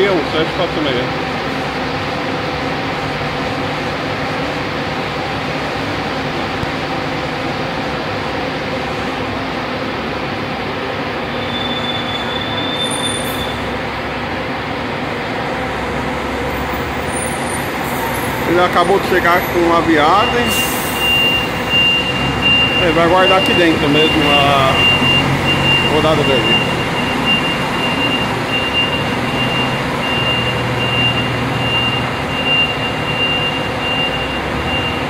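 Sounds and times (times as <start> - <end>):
bus engine rumble: 0.0 - 35.0
brief high squeal: 11.3 - 13.7.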